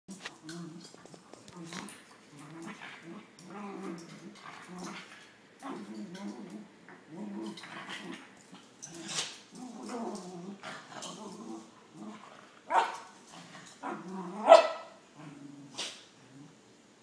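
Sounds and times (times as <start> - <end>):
dogs growling: 0.1 - 16.7
dog barking sharply: 14.5 - 15.0.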